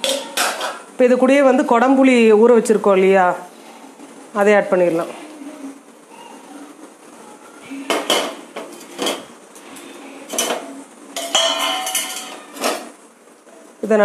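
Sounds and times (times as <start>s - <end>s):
spoon clinking on pot: 0.0s - 0.8s, 10.3s - 12.9s.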